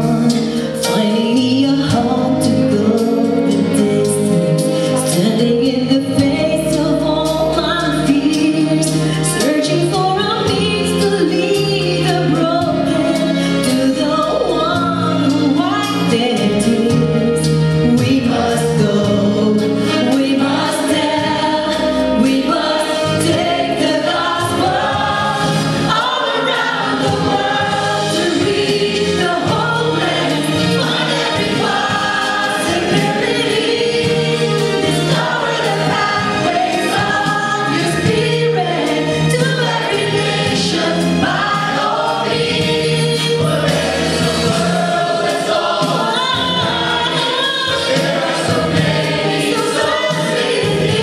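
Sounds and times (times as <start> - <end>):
church choir singing: 17.0 - 51.0.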